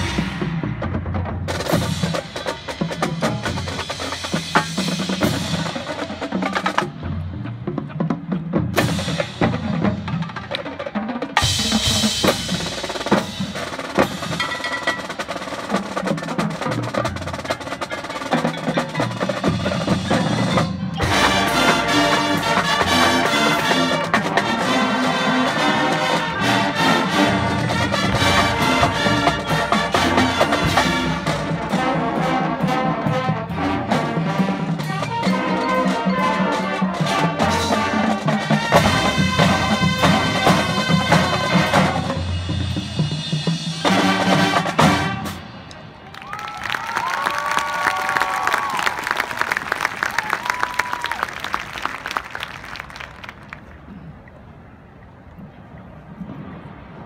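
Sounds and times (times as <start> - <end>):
drums and percussion: 0.0 - 54.0
marching band playing: 0.0 - 54.0.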